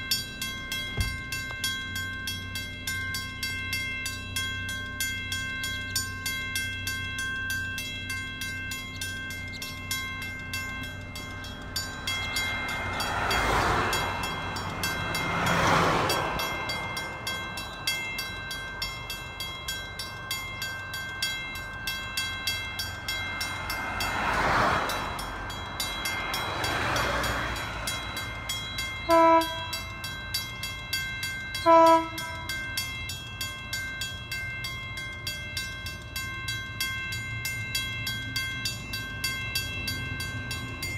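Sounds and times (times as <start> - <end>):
level crossing warning bell: 0.0 - 40.9
road vehicles passing: 0.0 - 40.9
train horn blasts: 29.1 - 29.8, 31.6 - 32.5.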